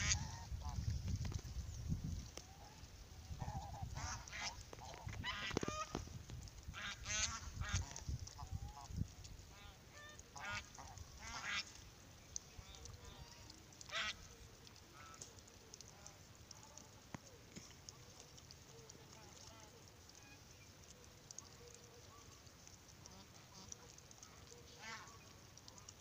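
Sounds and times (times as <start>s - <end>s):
ducks quacking: 0.0s - 0.8s, 3.4s - 6.0s, 6.7s - 11.8s, 12.7s - 14.3s, 23.0s - 25.3s.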